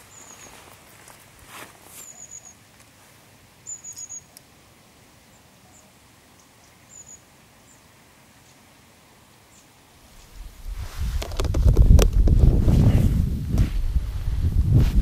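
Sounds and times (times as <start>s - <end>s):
small bird chirping: 0.0s - 1.0s, 2.0s - 2.6s, 3.6s - 4.4s, 5.3s - 8.6s
faint outdoor hiss: 0.0s - 15.0s.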